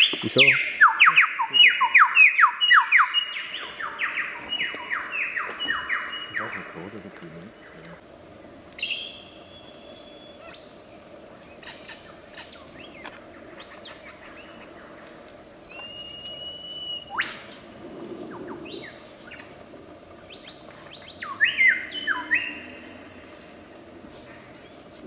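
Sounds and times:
lyrebird singing whistles and chirps: 0:00.0 - 0:06.8, 0:08.8 - 0:10.6, 0:15.6 - 0:17.3.

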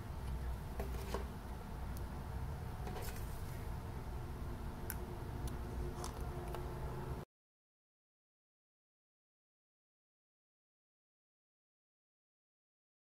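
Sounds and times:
low hum: 0:00.0 - 0:07.3.

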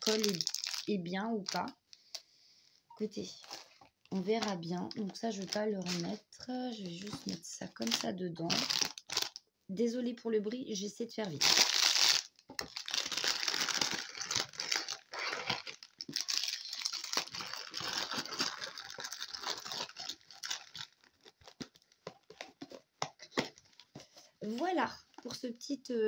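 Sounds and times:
packaging crinkling and rustling: 0:00.0 - 0:02.2, 0:03.2 - 0:09.4, 0:11.3 - 0:25.4.

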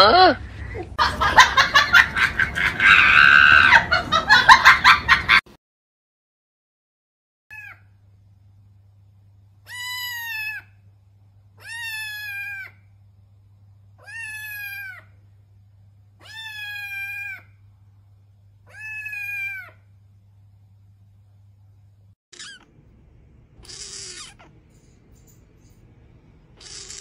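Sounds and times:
kitten meowing: 0:09.7 - 0:10.7, 0:11.6 - 0:12.8, 0:14.0 - 0:15.1, 0:16.2 - 0:17.5, 0:18.7 - 0:19.8, 0:22.4 - 0:22.7, 0:23.6 - 0:24.6, 0:26.6 - 0:27.0.

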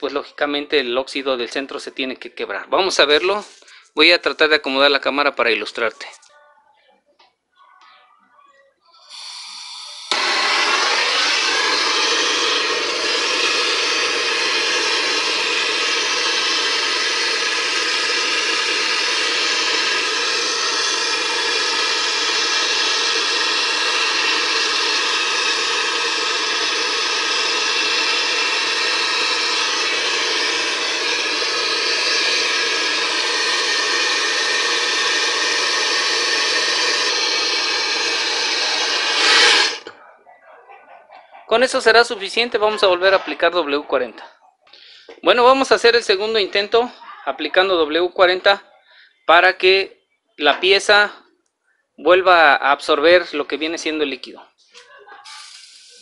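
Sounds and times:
blowtorch flame hissing: 0:09.0 - 0:40.0, 0:55.2 - 0:56.0.

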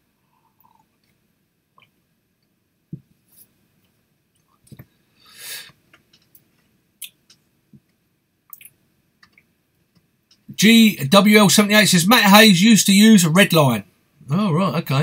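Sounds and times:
person breathing: 0:05.0 - 0:05.8.

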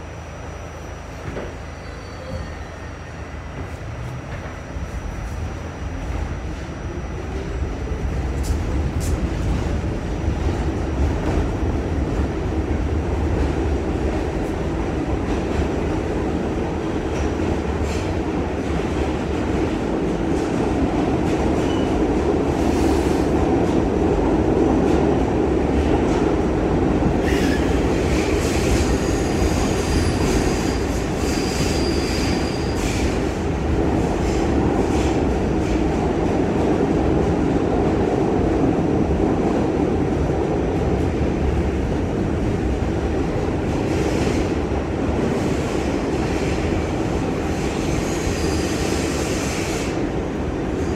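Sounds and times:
train wheels rumbling on rails: 0:00.0 - 0:50.9.

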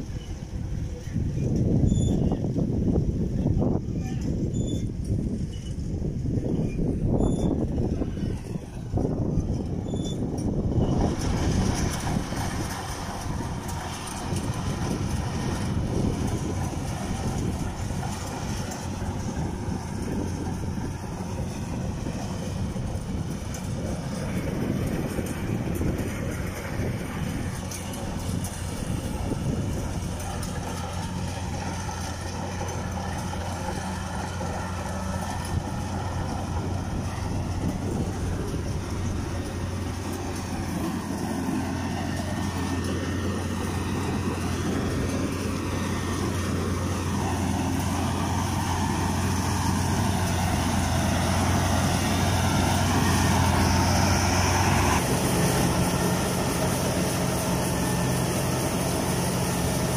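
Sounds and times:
combine harvester diesel engine: 0:00.0 - 0:59.9.

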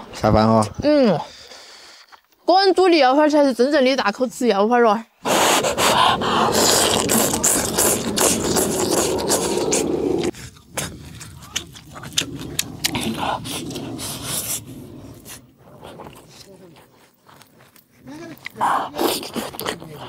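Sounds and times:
close-up wet chewing: 0:05.2 - 0:20.0
person slurping noodles: 0:05.2 - 0:20.0.

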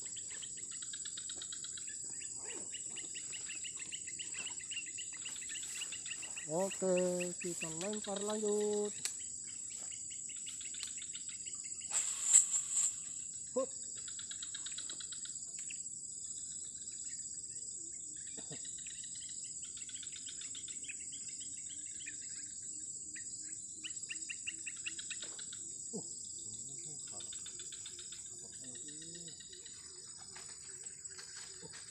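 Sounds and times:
birds chirping: 0:00.0 - 0:11.9, 0:26.9 - 0:31.9
high-pitched insect drone: 0:00.0 - 0:31.9.

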